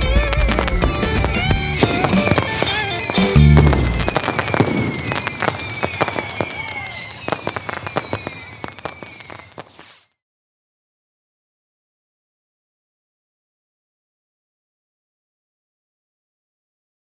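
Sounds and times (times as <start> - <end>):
fireworks deep boom: 0.0 - 10.0
fireworks bangs and crackles: 0.0 - 10.2.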